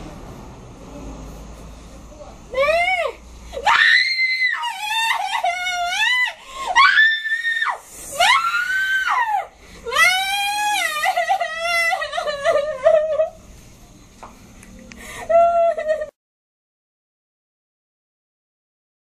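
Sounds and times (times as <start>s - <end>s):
girl screaming and sobbing: 2.5s - 13.4s.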